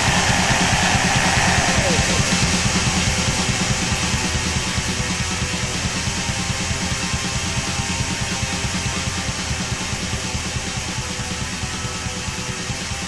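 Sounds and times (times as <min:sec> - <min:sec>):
black metal music: 0:00.0 - 0:06.9
rapid drumming: 0:00.0 - 0:11.7
guitar: 0:00.0 - 0:13.0.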